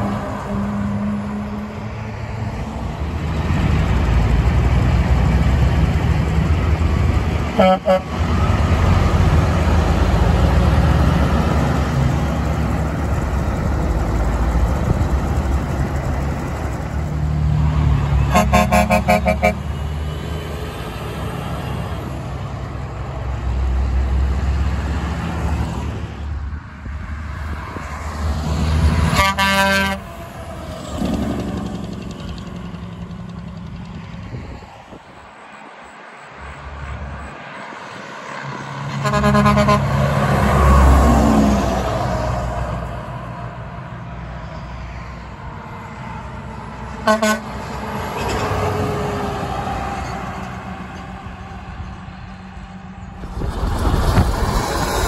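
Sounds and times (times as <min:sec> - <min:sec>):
heavy diesel trucks passing: 0:00.0 - 0:55.0
truck air horn blasts: 0:00.3 - 0:01.9, 0:07.5 - 0:08.2, 0:18.2 - 0:19.8, 0:29.1 - 0:30.2, 0:38.9 - 0:40.8, 0:47.0 - 0:47.6.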